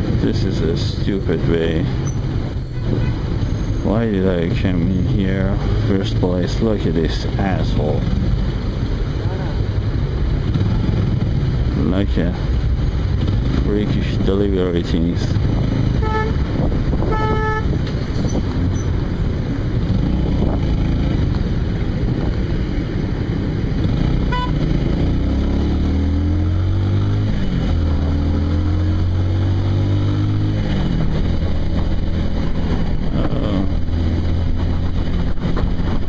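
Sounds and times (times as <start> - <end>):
city traffic: 0.0 - 36.0
motorcycle engine revving: 9.5 - 14.2, 15.2 - 36.0
horn honk: 16.0 - 17.8, 24.3 - 24.7.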